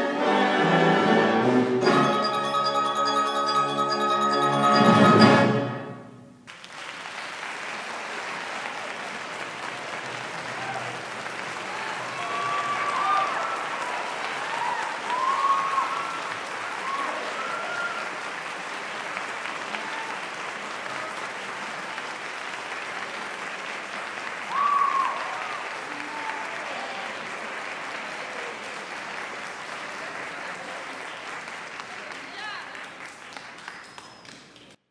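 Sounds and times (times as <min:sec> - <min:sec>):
audience applauding: 0:06.4 - 0:34.8
shouted cheers: 0:10.3 - 0:18.2, 0:19.6 - 0:21.3, 0:24.4 - 0:27.3.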